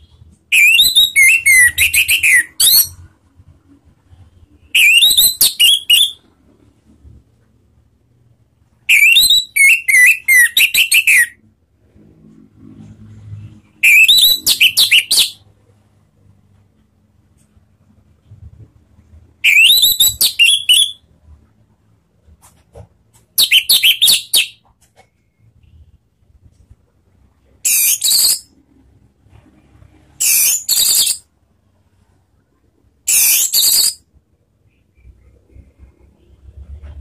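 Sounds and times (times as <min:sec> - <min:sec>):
bird singing whistled phrases: 0:00.5 - 0:03.0, 0:04.7 - 0:06.2, 0:08.9 - 0:11.4, 0:13.8 - 0:15.4, 0:19.4 - 0:21.0, 0:23.4 - 0:24.6, 0:27.7 - 0:28.4, 0:30.2 - 0:31.2, 0:33.1 - 0:34.0.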